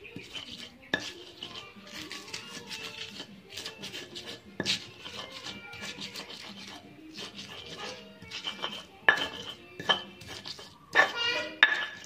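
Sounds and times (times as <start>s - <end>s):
pestle grinding in stone mortar: 0.0s - 12.0s
high-pitched cry: 10.9s - 11.6s.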